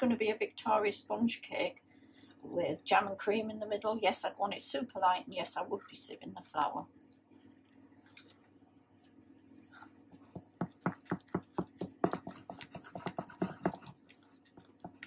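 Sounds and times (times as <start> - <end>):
spoon beating batter in glass bowl: 9.7 - 15.0.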